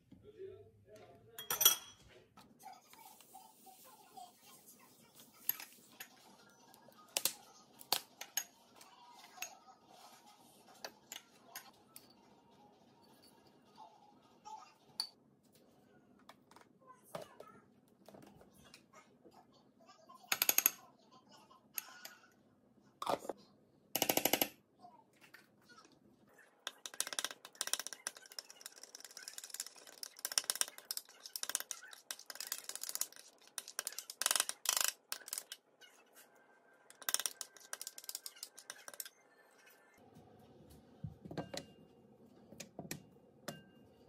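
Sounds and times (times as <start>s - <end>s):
metal spoon clinking in bowl: 1.4s - 2.1s
spoon scraping ceramic bowl: 26.8s - 35.6s, 36.9s - 39.7s.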